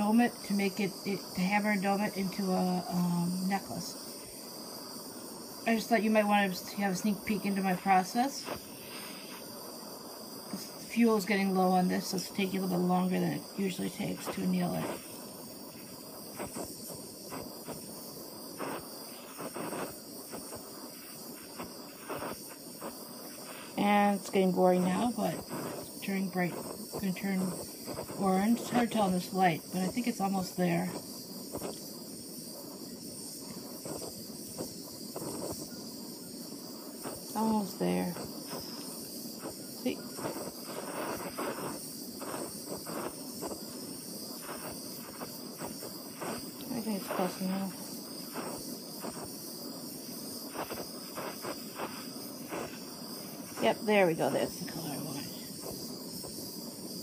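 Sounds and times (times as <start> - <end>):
gas torch flame hissing: 0.0 - 57.0
short crackles: 36.9 - 56.5.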